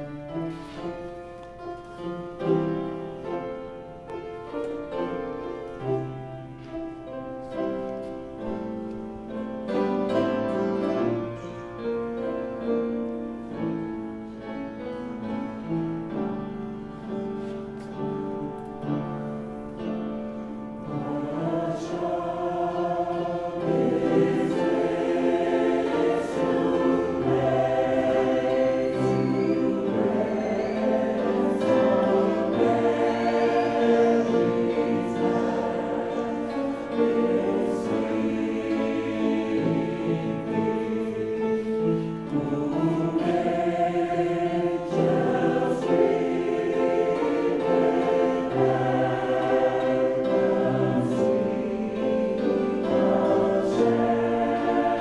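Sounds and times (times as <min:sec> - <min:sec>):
upright piano playing: 0:00.0 - 0:55.0
choir singing: 0:01.9 - 0:55.0.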